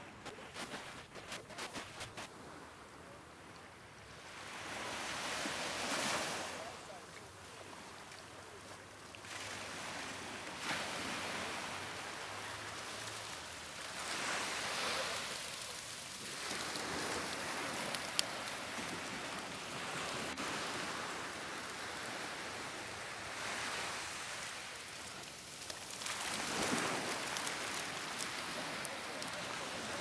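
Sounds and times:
surf washing onto beach: 0:04.2 - 0:30.0.

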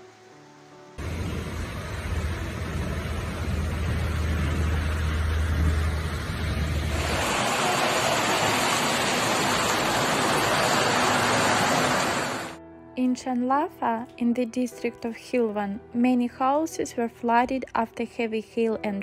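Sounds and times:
floodwater rushing: 0:01.0 - 0:12.6
low hum: 0:01.0 - 0:12.6.

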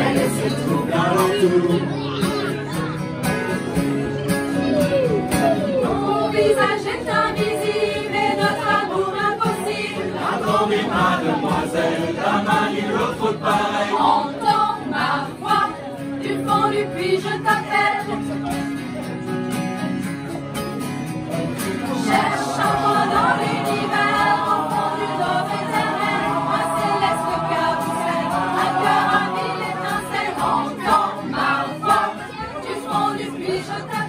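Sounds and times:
choir singing: 0:00.0 - 0:01.6, 0:05.8 - 0:18.2, 0:21.8 - 0:34.0
strummed acoustic guitar: 0:00.0 - 0:34.0.

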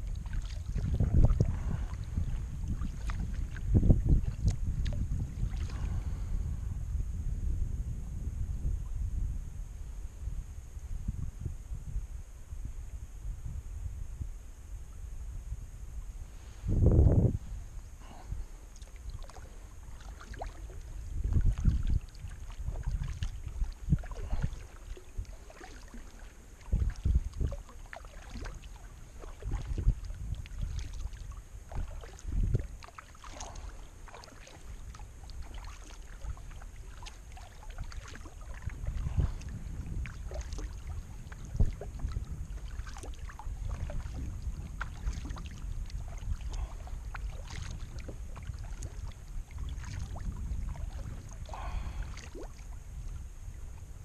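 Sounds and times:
paddle splashing in water: 0:00.0 - 0:06.2, 0:18.0 - 0:53.8
wind rumble on microphone: 0:00.0 - 0:54.0
microphone handling noise: 0:16.2 - 0:17.9.

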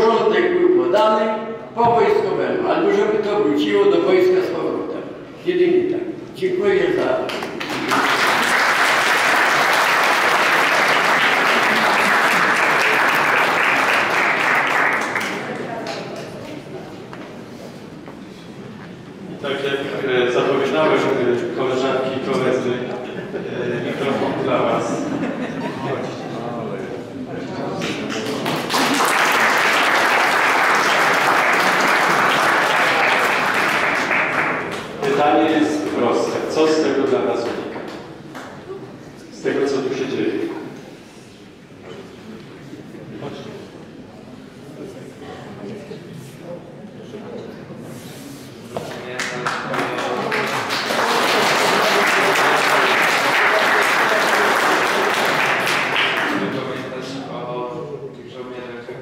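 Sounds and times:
audience applauding: 0:07.3 - 0:16.3, 0:27.8 - 0:35.6, 0:49.2 - 0:57.0.

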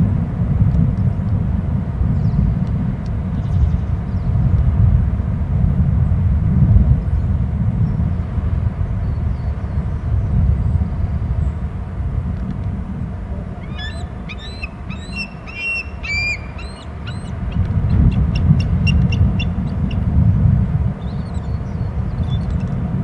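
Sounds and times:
steady low rumble: 0:00.0 - 0:23.0
eagle chirping whistles: 0:13.6 - 0:17.4, 0:18.0 - 0:19.8.

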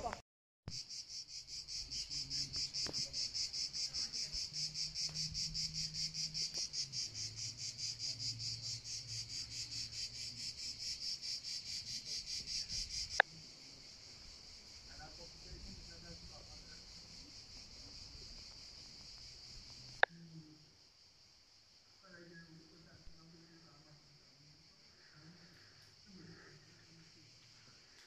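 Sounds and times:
insects chirping in pulses: 0:00.7 - 0:28.0.

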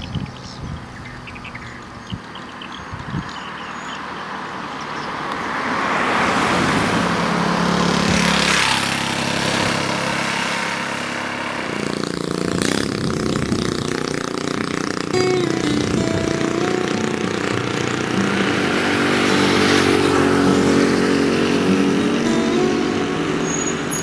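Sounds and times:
vehicle passing: 0:03.4 - 0:24.0
motorcycle engine running: 0:07.8 - 0:24.0.

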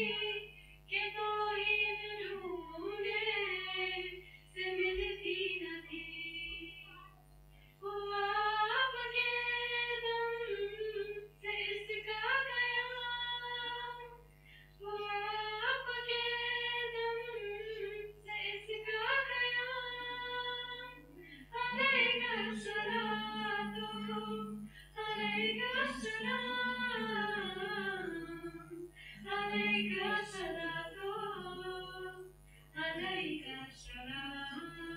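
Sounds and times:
girls singing unaccompanied: 0:00.0 - 0:06.9, 0:14.8 - 0:34.9
lower voice singing: 0:00.0 - 0:07.1, 0:14.8 - 0:34.9.

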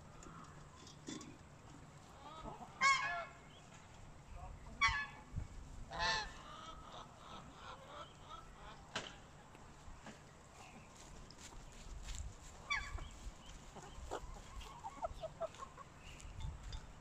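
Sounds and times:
geese honking: 0:02.1 - 0:03.4, 0:04.8 - 0:05.2, 0:05.9 - 0:08.8.

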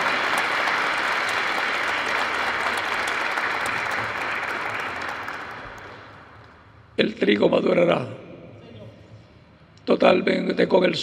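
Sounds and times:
congregation applauding: 0:00.0 - 0:06.7.

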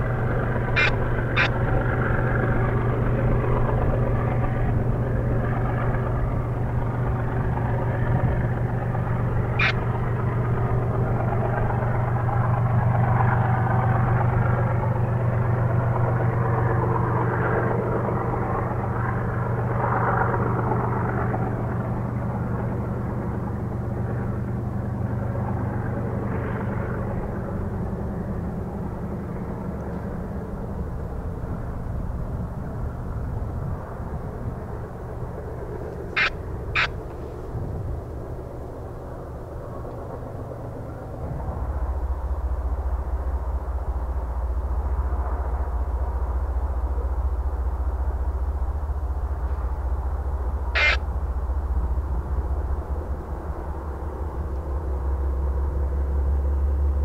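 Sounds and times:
large engine droning: 0:00.0 - 0:57.0
rushing noise: 0:09.1 - 0:09.8, 0:50.8 - 0:51.0.

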